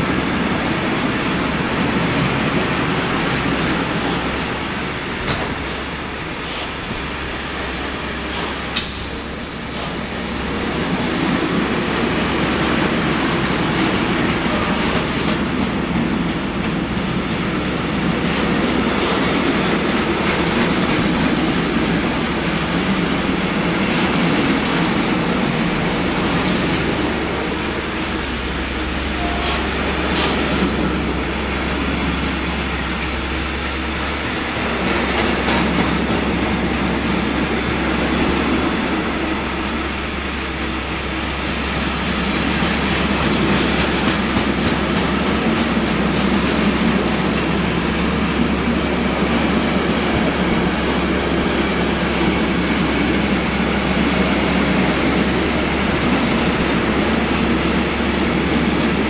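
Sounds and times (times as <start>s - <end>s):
freight train rumbling past: 0.0s - 59.0s
train wheel clicks: 42.2s - 48.6s.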